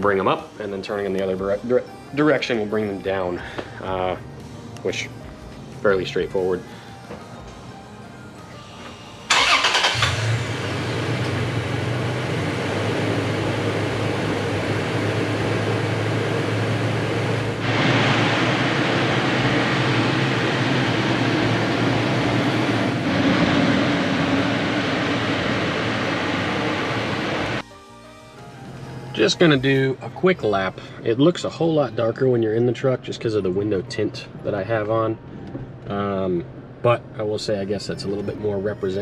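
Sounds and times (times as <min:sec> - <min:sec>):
car engine starting and idling: 0:02.4 - 0:27.6.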